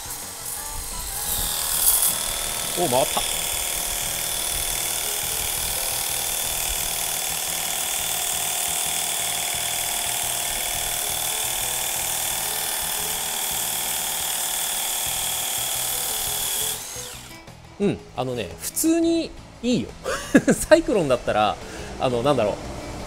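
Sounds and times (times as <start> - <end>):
water jet hissing onto concrete: 0.0 - 17.0
pressure washer motor whining: 0.0 - 17.6.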